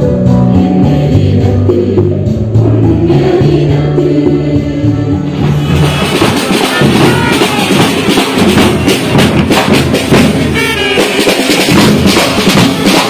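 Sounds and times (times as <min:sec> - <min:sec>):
bass drum beating: 0:00.0 - 0:13.0
snare drums: 0:05.3 - 0:13.0
trumpets playing: 0:05.6 - 0:09.1, 0:10.3 - 0:11.8.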